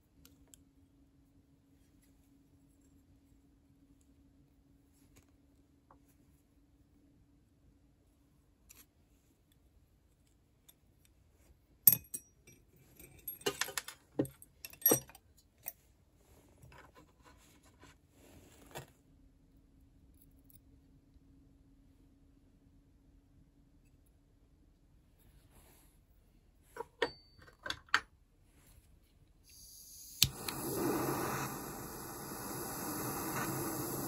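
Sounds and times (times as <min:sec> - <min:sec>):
faint steady hum: 0:00.0 - 0:34.0
metal tools clinking and clattering: 0:11.9 - 0:14.0, 0:14.6 - 0:15.2.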